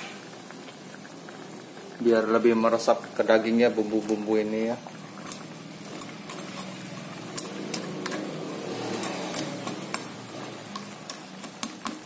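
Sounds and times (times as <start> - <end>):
broth simmering and bubbling: 0.0 - 12.0
small pops and clicks: 10.7 - 12.0.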